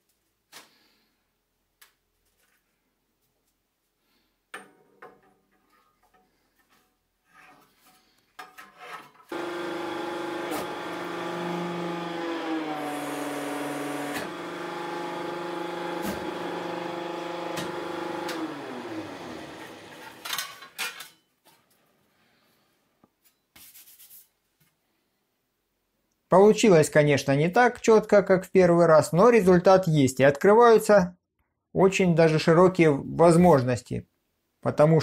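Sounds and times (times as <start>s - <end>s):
electric pump motor humming: 9.3s - 20.3s
metal handling sounds: 20.0s - 21.7s.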